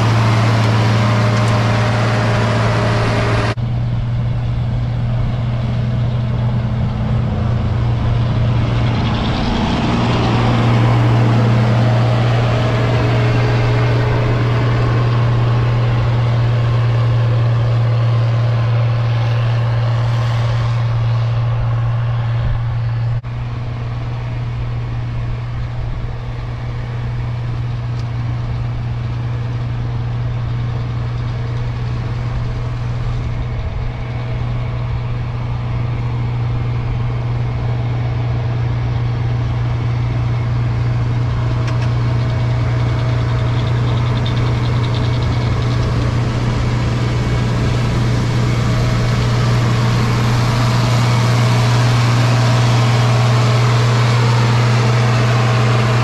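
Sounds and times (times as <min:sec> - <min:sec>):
snow blower throwing snow: 0:00.0 - 0:03.6, 0:39.4 - 0:56.0
diesel tractor engine under load: 0:00.0 - 0:56.0.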